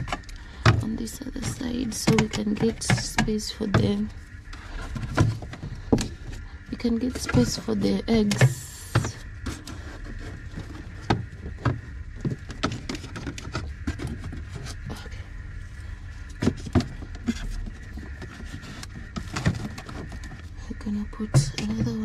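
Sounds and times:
plastic containers knocking in fridge: 0.0 - 4.1, 21.2 - 22.0.

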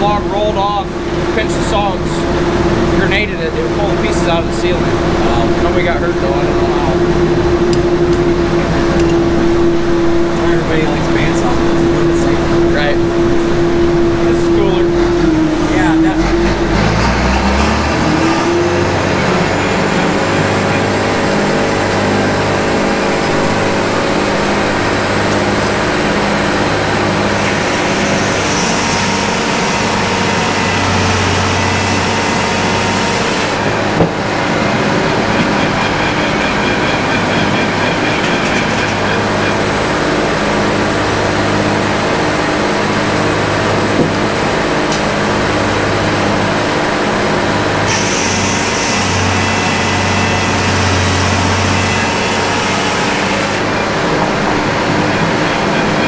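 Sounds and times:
tractor engine drone: 0.0 - 56.0
circular saw cutting log: 14.8 - 41.6, 47.8 - 56.0.

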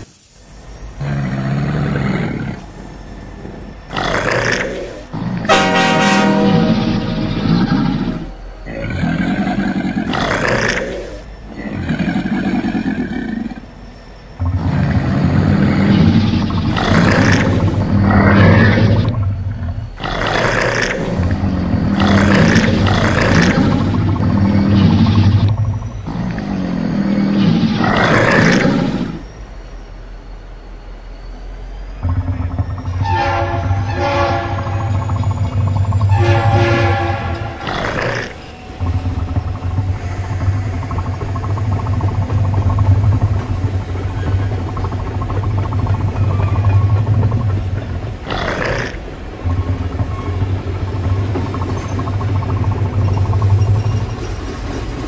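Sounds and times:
diesel locomotive engine rumble: 0.0 - 55.0
animal roars: 0.9 - 13.7, 14.4 - 29.3, 32.0 - 54.1
locomotive air horn blasts: 5.5 - 7.3, 33.0 - 35.0, 36.1 - 37.8.

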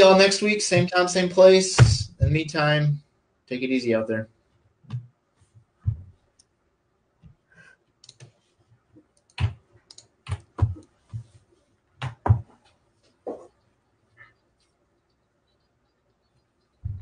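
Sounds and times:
keyboard and mouse clicks: 4.9 - 5.1, 8.0 - 8.4, 9.0 - 11.0.

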